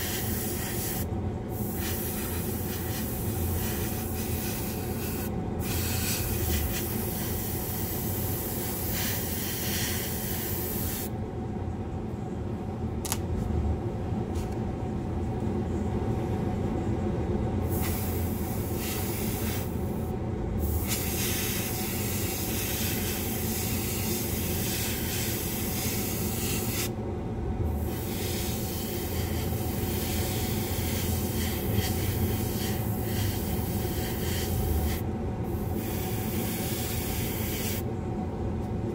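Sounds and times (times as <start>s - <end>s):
airbrush hissing: 0.0s - 11.1s, 17.6s - 27.0s, 27.7s - 37.8s.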